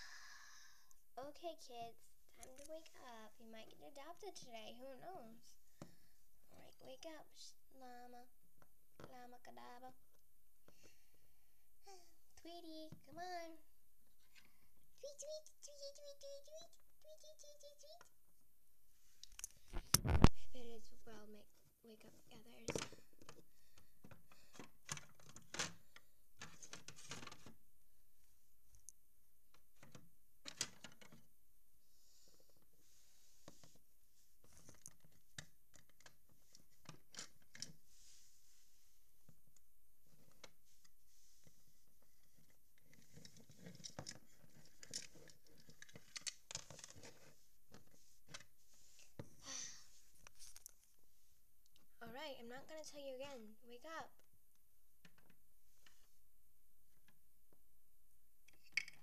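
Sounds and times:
plastic toys clicking and tapping: 42.8s - 47.3s.

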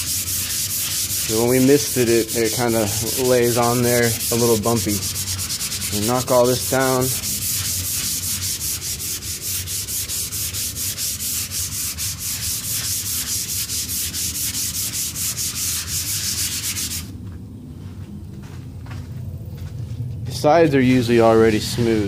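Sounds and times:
sandpaper rubbing on wood: 0.0s - 17.1s.

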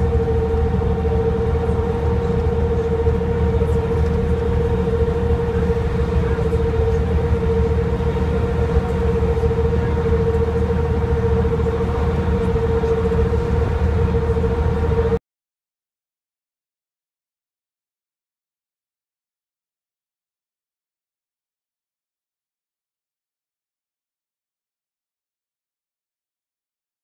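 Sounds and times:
bus engine droning: 0.0s - 15.2s
steady whine: 0.0s - 15.2s.

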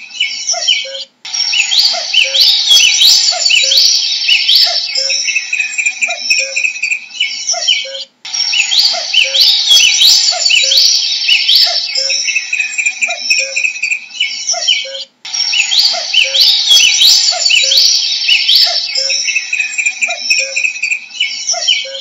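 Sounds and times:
songbird chirps and trills: 0.0s - 22.0s.

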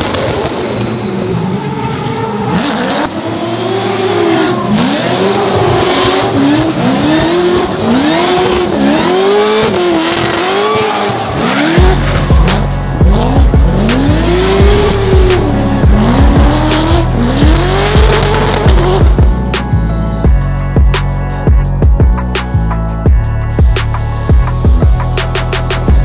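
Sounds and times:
car engine revving: 0.0s - 26.0s
music with heavy beat: 11.5s - 26.0s.

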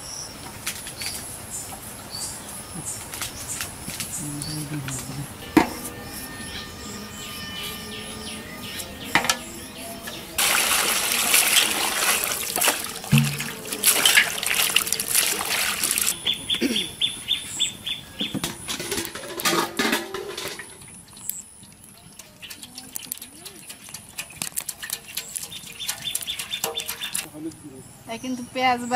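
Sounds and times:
water splashing in a basin: 10.4s - 16.2s, 18.5s - 27.3s.

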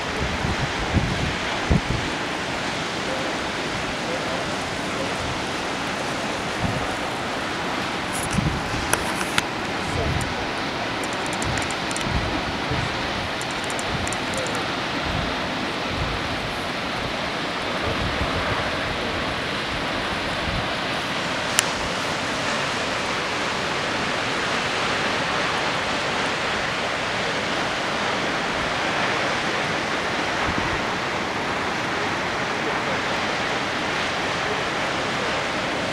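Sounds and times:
wind buffeting microphone: 0.0s - 10.5s, 11.3s - 17.2s, 30.3s - 31.0s
waterfall rushing: 0.0s - 35.9s
sharp click: 11.0s - 12.1s, 13.4s - 14.6s.

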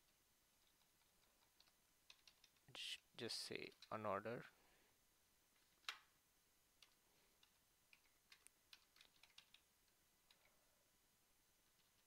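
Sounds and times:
computer keyboard keystrokes: 0.6s - 2.6s, 6.8s - 9.7s.

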